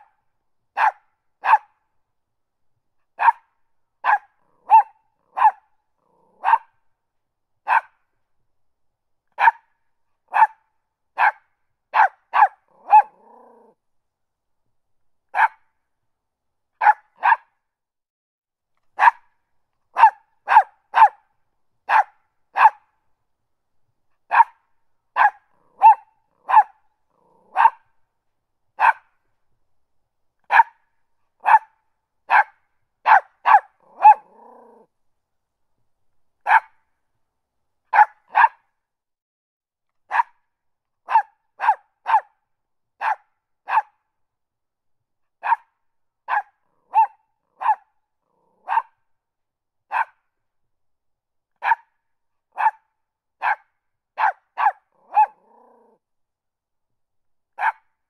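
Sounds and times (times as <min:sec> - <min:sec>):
puppy yapping: 0:00.8 - 0:01.6, 0:03.2 - 0:03.4, 0:04.0 - 0:06.7, 0:09.4 - 0:09.6, 0:12.0 - 0:13.8, 0:16.8 - 0:17.5, 0:20.0 - 0:21.2, 0:21.9 - 0:22.8, 0:24.3 - 0:24.6, 0:25.2 - 0:27.8, 0:30.5 - 0:30.8, 0:31.4 - 0:31.7, 0:33.1 - 0:34.9, 0:36.5 - 0:36.7, 0:41.1 - 0:42.3, 0:45.4 - 0:45.7, 0:46.3 - 0:48.9, 0:49.9 - 0:50.2, 0:54.2 - 0:56.0, 0:57.6 - 0:57.8.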